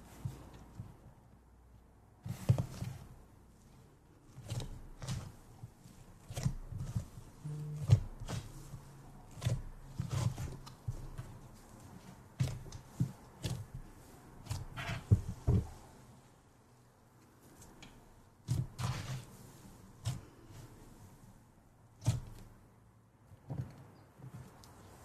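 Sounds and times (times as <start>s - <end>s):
fingers squishing thick slime: 2.2s - 16.0s, 17.4s - 22.7s.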